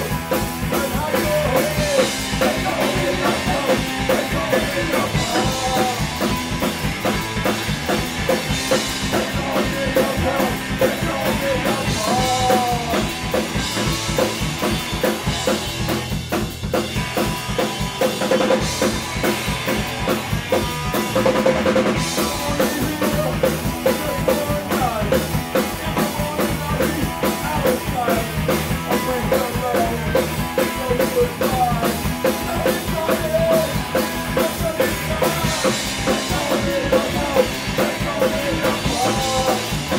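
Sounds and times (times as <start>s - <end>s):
punk rock band playing live: 0.0s - 39.9s.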